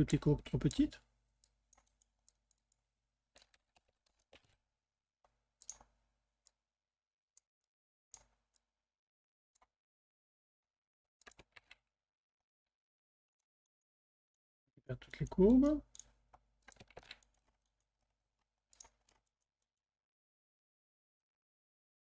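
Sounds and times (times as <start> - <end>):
computer mouse and keyboard clicks: 11.2 - 11.8, 15.2 - 17.8, 18.7 - 19.4.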